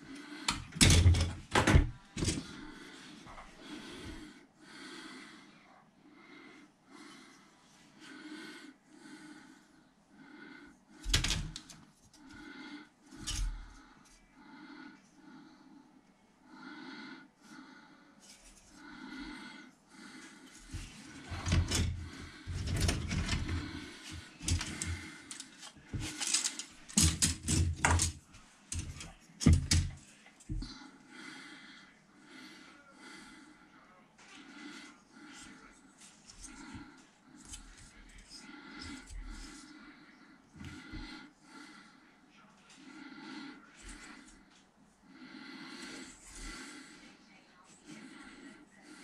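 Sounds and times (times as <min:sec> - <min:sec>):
plastic parts clicking and clattering: 0:00.5 - 0:02.5, 0:21.3 - 0:30.0
breathing through the nose: 0:02.2 - 0:49.0.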